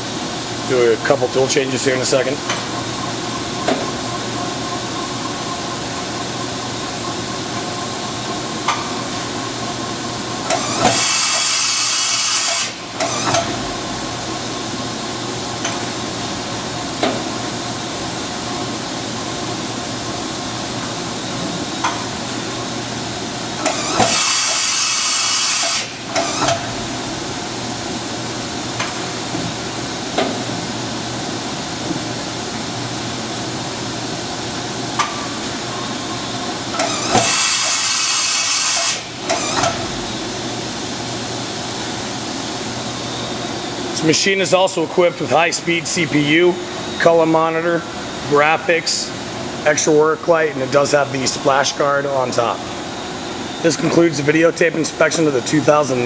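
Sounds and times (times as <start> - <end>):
tool changer hiss: 10.4 - 13.6, 23.6 - 27.1, 36.7 - 40.3.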